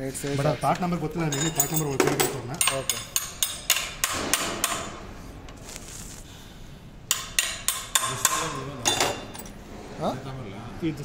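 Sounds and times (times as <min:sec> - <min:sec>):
small steel parts clinking: 0:01.3 - 0:03.8, 0:08.8 - 0:09.6.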